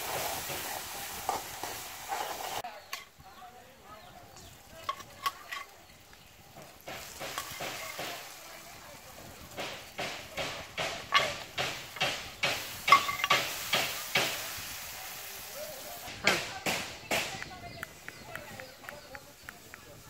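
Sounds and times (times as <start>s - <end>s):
metal spoon scraping a wok: 0.0s - 3.1s
food sizzling: 0.0s - 18.3s.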